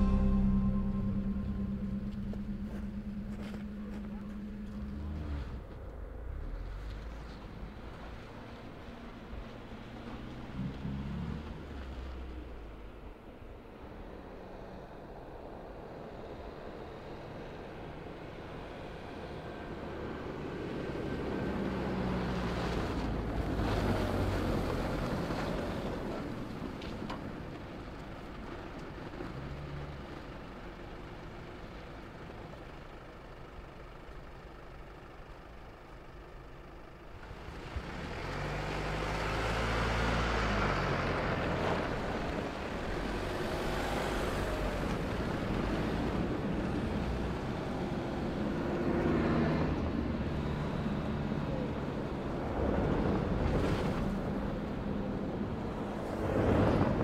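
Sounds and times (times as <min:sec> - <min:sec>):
car engine driving past: 0:00.0 - 0:12.8.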